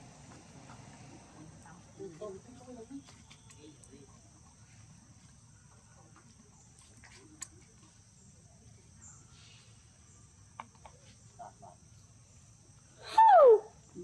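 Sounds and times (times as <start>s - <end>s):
insects trilling: 1.4s - 14.0s.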